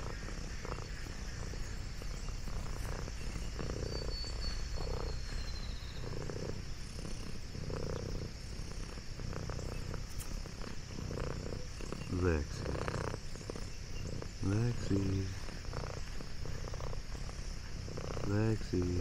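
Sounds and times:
cat purring: 0.0 - 19.0.

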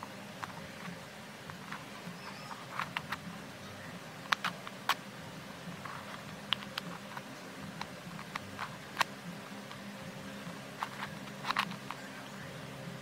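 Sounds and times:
steady low hum: 0.0 - 13.0
puzzle cube clicking: 1.5 - 3.2, 4.2 - 5.0, 5.8 - 9.8, 10.8 - 12.1.

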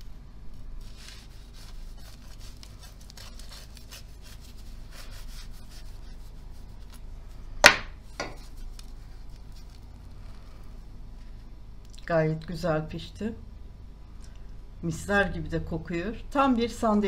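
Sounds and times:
knife cutting bread crust: 0.8 - 9.8.

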